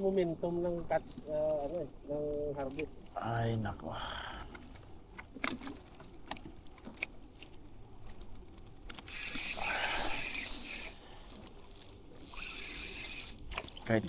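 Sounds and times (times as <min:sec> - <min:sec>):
reel handling clicks: 0:08.1 - 0:13.7
fishing reel gear whir: 0:08.9 - 0:13.5.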